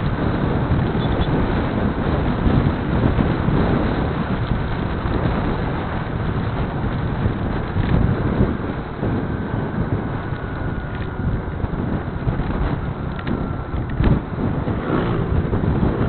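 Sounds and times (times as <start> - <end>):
road and engine rumble: 0.0 - 16.0
wind rushing over microphone: 0.0 - 16.0.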